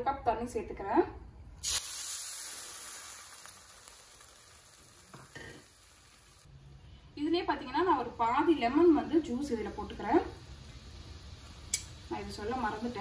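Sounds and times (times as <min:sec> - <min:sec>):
soft hiss: 0:01.5 - 0:13.0
water splashing onto sugar: 0:01.6 - 0:05.1.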